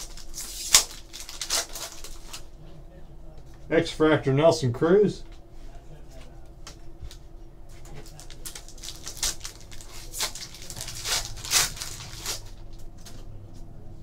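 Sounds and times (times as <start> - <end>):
cards rustling: 0.0 - 2.5, 7.8 - 13.7
foil wrapper crinkling and tearing: 0.0 - 2.5, 7.8 - 13.1.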